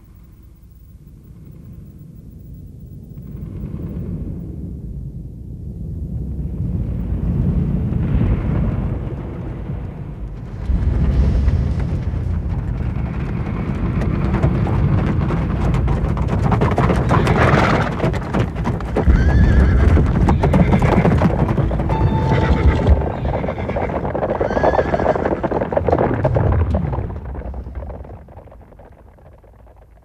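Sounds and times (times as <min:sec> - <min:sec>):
horse hoofbeats galloping: 0:10.7 - 0:30.0
horses whinnying: 0:16.6 - 0:26.2.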